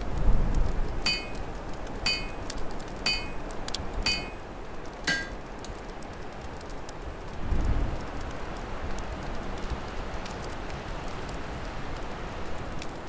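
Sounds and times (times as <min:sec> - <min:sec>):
low wind rumble: 0:00.0 - 0:13.0
metal striking metal: 0:01.1 - 0:04.4, 0:05.1 - 0:05.4.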